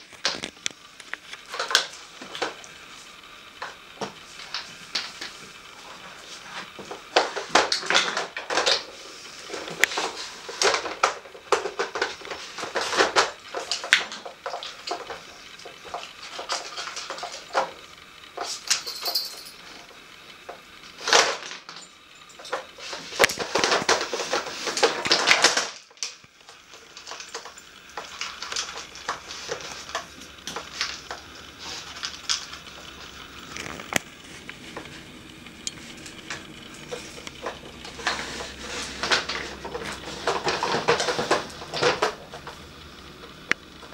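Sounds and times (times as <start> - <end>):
plastic puzzle clattering: 6.4 - 18.6, 22.4 - 34.0, 36.1 - 42.6.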